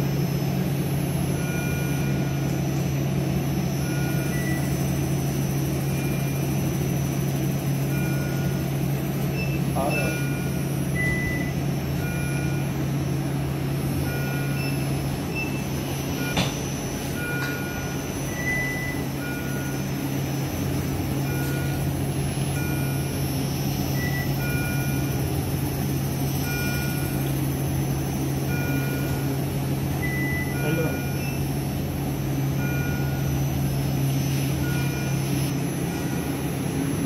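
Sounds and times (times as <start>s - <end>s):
low hum of room equipment: 0.0s - 37.0s
patient monitor beeps: 1.3s - 2.6s, 3.8s - 4.8s, 5.8s - 6.8s, 7.8s - 8.7s, 9.3s - 13.1s, 13.9s - 20.2s, 20.8s - 25.3s, 26.4s - 27.3s, 28.2s - 31.6s, 32.3s - 36.5s.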